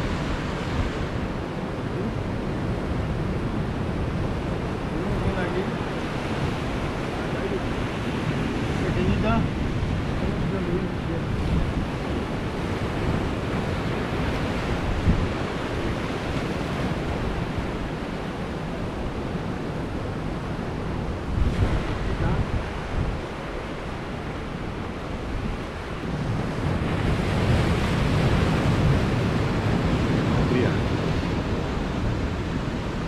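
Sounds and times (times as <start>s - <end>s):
waves breaking over rocks: 0.0s - 33.0s
wind buffeting microphone: 0.0s - 33.0s.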